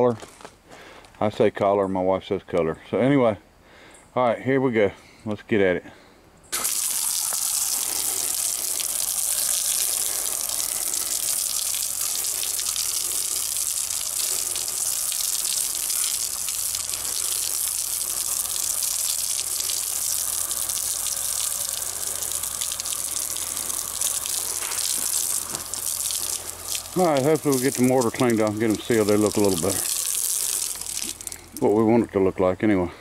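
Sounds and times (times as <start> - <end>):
hose water spraying on stone wall: 6.5 - 31.9.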